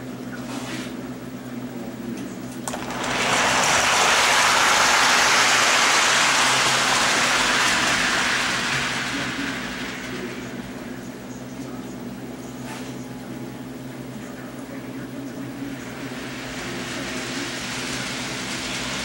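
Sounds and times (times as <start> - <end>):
steady electric hum: 0.0 - 19.0
toy train rolling on track: 2.6 - 11.6, 15.1 - 19.0.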